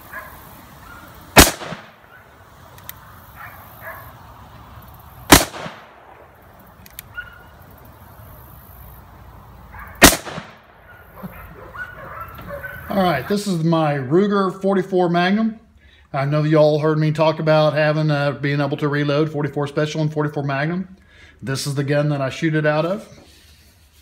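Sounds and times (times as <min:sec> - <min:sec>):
revolver gunshots with echo: 0:01.4 - 0:02.1, 0:05.3 - 0:06.4, 0:10.0 - 0:10.8.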